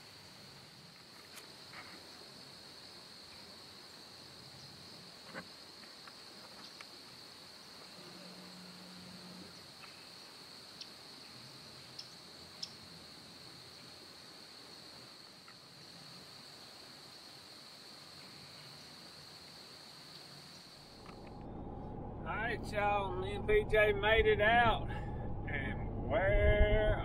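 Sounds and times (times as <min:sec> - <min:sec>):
faint high-pitched hum: 0:06.5 - 0:27.0
short low hum: 0:20.9 - 0:27.0.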